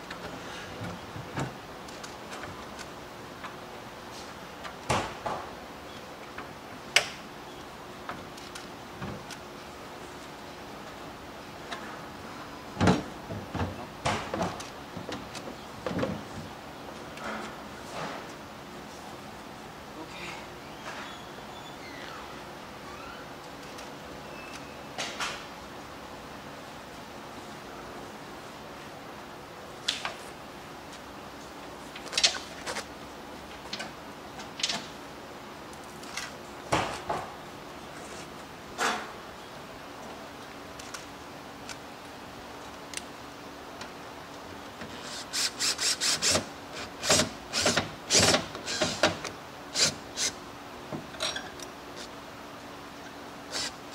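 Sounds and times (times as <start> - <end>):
metal parts and tools clanking: 51.1 - 51.7.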